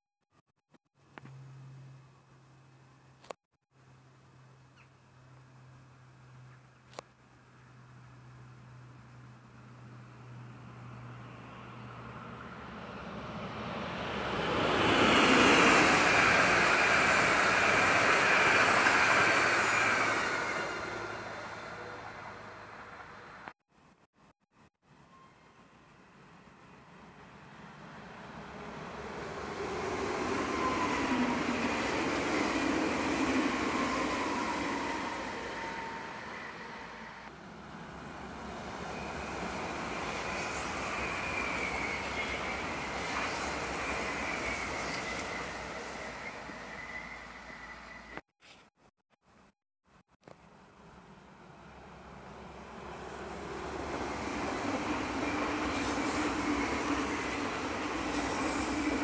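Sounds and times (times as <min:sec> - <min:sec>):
steady train hum: 0:03.8 - 0:23.5, 0:25.9 - 0:48.1, 0:50.5 - 0:59.0
electric train passing: 0:07.4 - 0:23.5, 0:27.0 - 0:48.2, 0:50.8 - 0:59.0.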